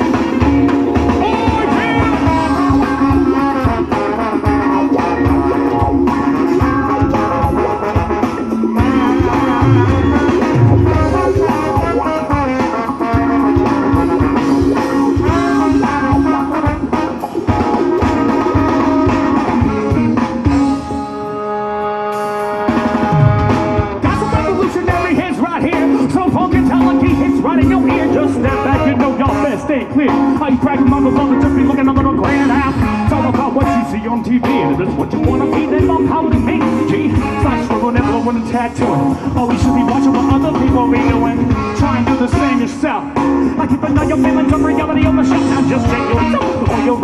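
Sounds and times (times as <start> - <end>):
person singing into microphone: 0.0 - 5.8, 8.7 - 14.0, 15.1 - 17.1, 23.2 - 47.0
drum kit: 0.0 - 47.0
electric guitar: 0.0 - 47.0
trombone and saxophones: 0.0 - 47.0.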